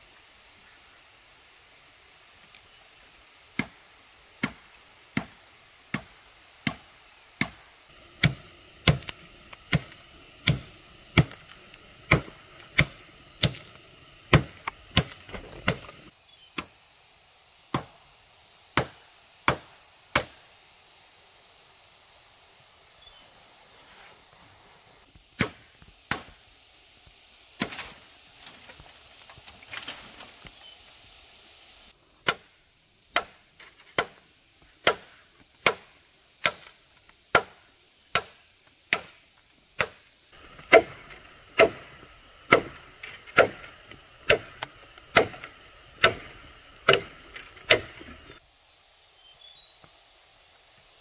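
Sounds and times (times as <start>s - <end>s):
insects buzzing: 0.0s - 51.0s
sharp chopping blows: 4.4s - 16.8s, 18.8s - 20.4s, 25.4s - 26.4s, 39.8s - 48.4s.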